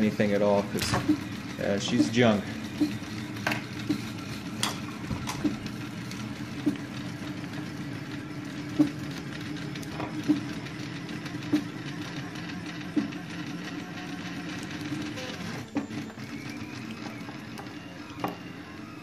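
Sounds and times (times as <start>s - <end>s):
three d printer humming: 0.0s - 19.0s.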